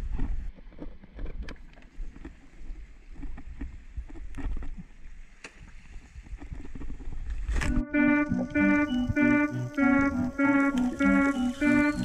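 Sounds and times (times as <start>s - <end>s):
wind rumbling on microphone: 0.0s - 7.8s.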